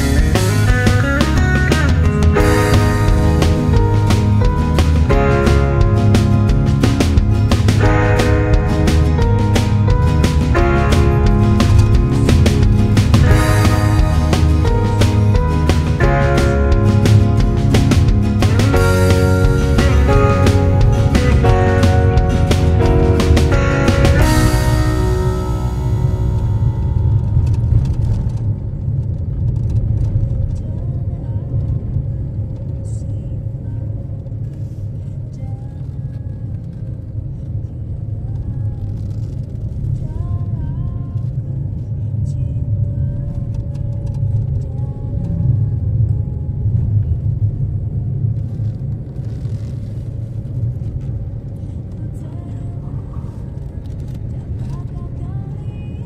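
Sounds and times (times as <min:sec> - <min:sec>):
car engine and tyre rumble: 0:00.0 - 0:56.0.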